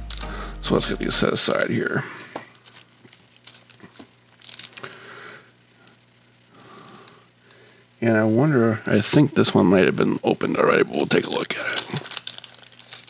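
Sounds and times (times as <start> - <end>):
wax paper rustling and crinkling: 2.5 - 5.1, 10.7 - 13.0.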